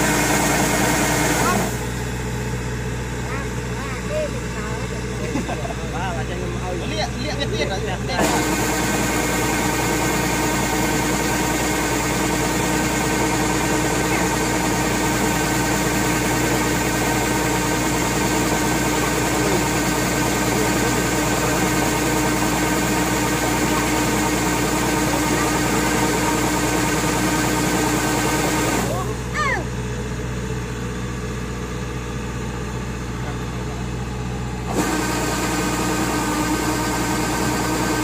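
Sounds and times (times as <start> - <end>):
heavy machine engine running: 0.0 - 38.0.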